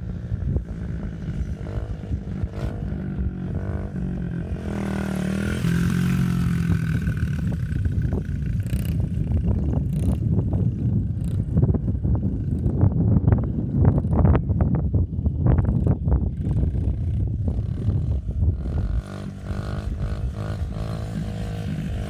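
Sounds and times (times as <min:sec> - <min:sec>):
dirt bike engine revving: 0:00.0 - 0:10.4, 0:16.4 - 0:22.0.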